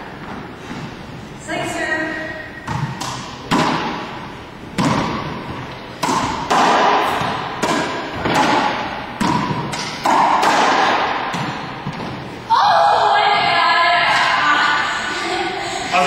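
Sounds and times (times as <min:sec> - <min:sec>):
racquetball hits with echo: 0:02.1 - 0:14.9.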